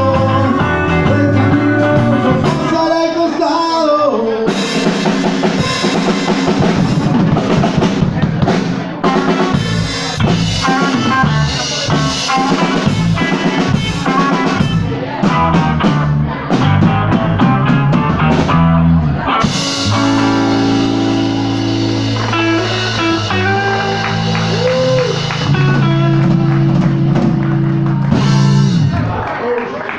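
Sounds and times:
held guitar chords: 0.0s - 3.8s, 4.4s - 29.2s
live rock band playing: 0.0s - 29.4s.

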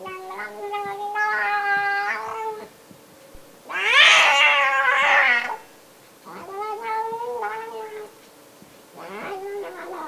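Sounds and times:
cat yowling: 0.0s - 2.7s, 3.6s - 5.7s, 6.3s - 8.1s, 9.0s - 10.0s.

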